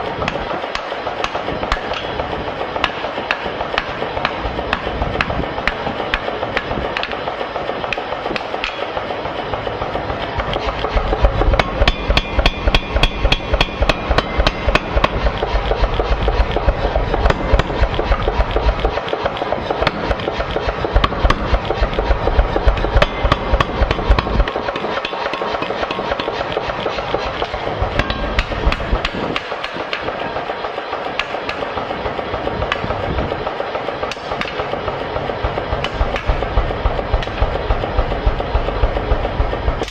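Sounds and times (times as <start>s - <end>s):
power hammer pounding: 0.0s - 39.9s
hammer blows ringing on anvil: 10.6s - 15.3s.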